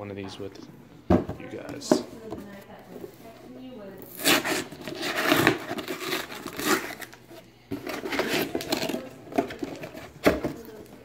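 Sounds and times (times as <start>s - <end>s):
cardboard flap scraping: 4.1s - 10.8s
cardboard box rustling: 4.2s - 11.0s.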